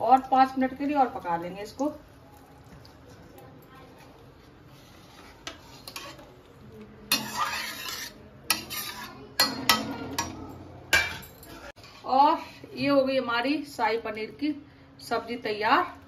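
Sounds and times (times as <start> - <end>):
ladle scraping a pan: 4.4 - 12.2.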